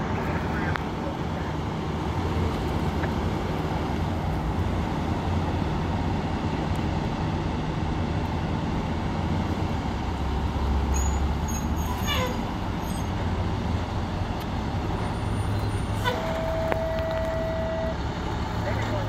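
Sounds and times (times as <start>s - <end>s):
low engine rumble: 0.0s - 19.0s
street traffic: 0.0s - 19.0s.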